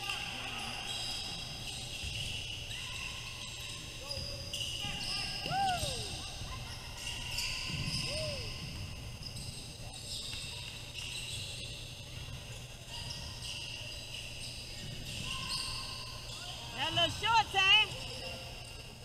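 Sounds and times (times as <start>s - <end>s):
shoe squeak: 0.5s - 19.0s.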